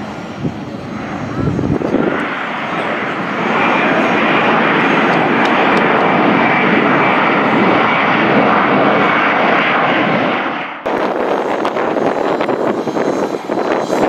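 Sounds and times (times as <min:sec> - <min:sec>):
jet engines roaring: 0:00.0 - 0:14.0.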